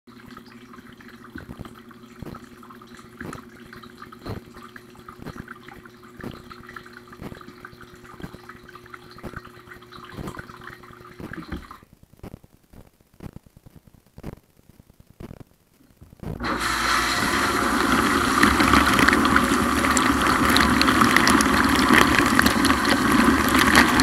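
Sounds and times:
water dripping: 0.1s - 11.8s
dishwasher pump and spray jets: 16.4s - 24.0s.

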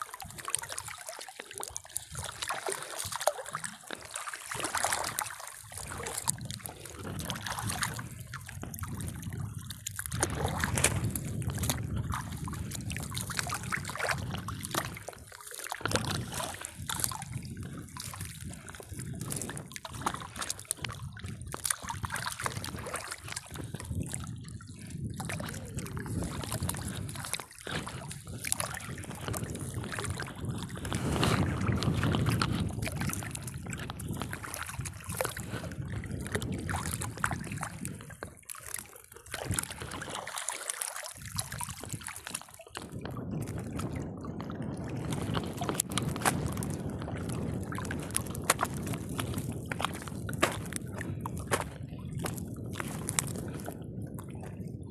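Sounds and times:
water sloshing and splashing: 0.0s - 54.9s.

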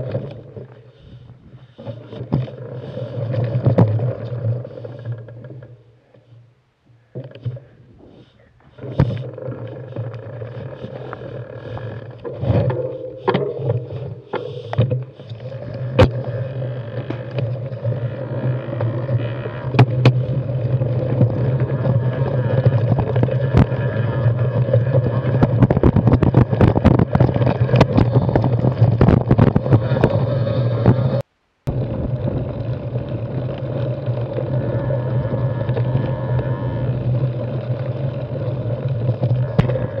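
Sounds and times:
bike tyres rolling on rocky trail: 0.0s - 5.8s, 7.5s - 40.0s
bike rattling over rocks: 8.7s - 40.0s.

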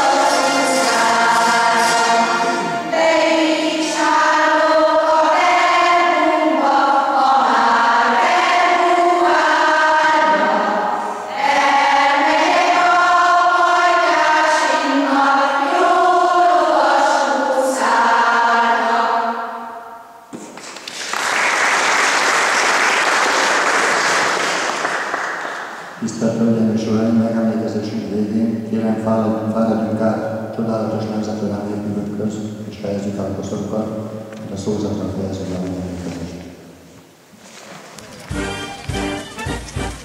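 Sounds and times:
zither ensemble playing: 0.0s - 3.0s
choir singing slow song: 0.0s - 20.2s.

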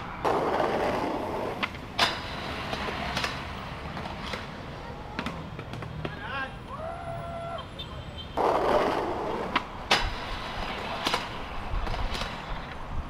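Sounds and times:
skateboard rolling scrape: 0.0s - 4.5s, 8.4s - 13.0s
skateboard clacks: 0.0s - 6.3s, 8.4s - 12.9s.

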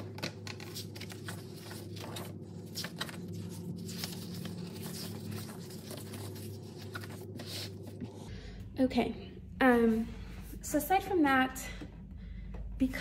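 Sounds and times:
paper pages turning: 0.0s - 8.2s
low hum: 0.0s - 13.0s.

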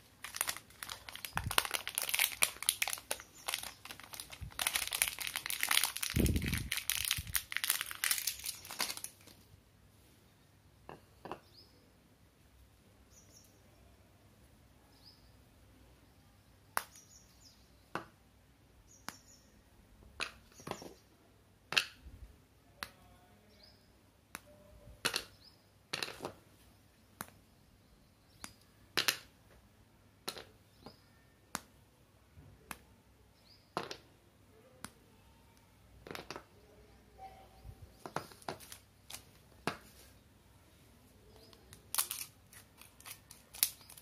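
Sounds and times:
chocolate bar snapping: 0.3s - 9.2s, 41.4s - 44.0s.

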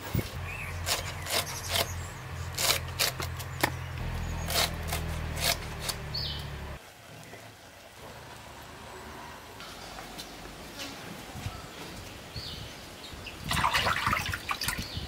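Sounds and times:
knife cutting and scraping: 0.0s - 6.4s.

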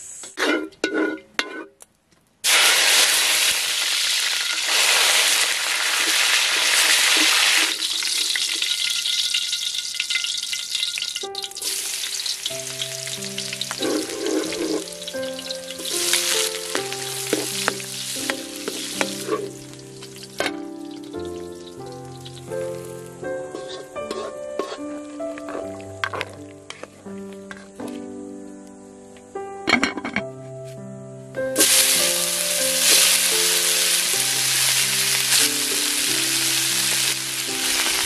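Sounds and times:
hot oil sizzling in a wok: 2.4s - 25.6s, 31.6s - 38.0s
wooden spatula stirring: 15.8s - 19.6s, 23.5s - 27.0s.

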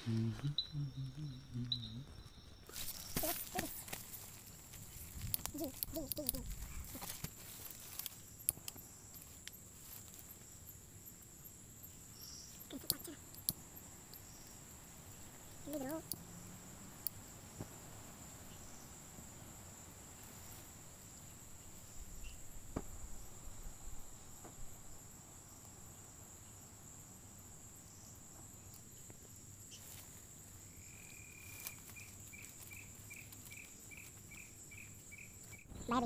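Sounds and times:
crickets droning: 0.0s - 36.0s
lower insect call with short chirps: 0.0s - 36.0s.

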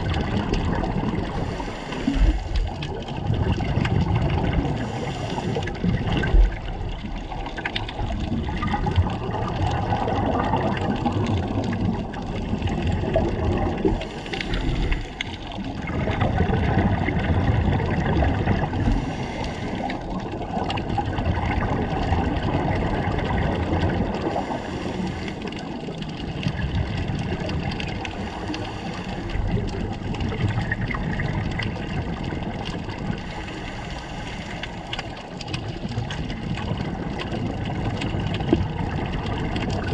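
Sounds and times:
muffled underwater rumble: 0.0s - 39.9s
regulator bubbles gurgling: 0.0s - 39.9s.

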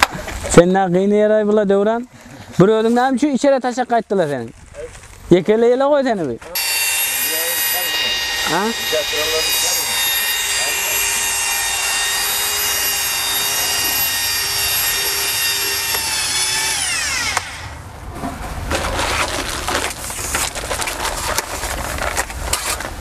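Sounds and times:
electric drill mixer whining: 6.6s - 17.8s.

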